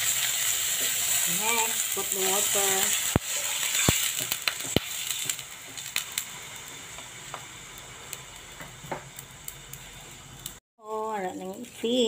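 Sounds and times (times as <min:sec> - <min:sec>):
pan sizzling and crackling: 0:00.0 - 0:12.0
sharp ticks from hot pan: 0:01.8 - 0:09.8.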